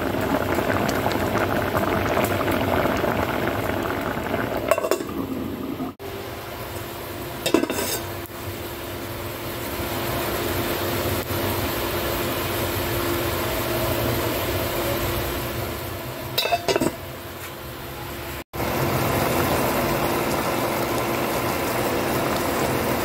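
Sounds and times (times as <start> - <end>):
metal cookware clinking: 7.4 - 8.1, 16.4 - 17.0.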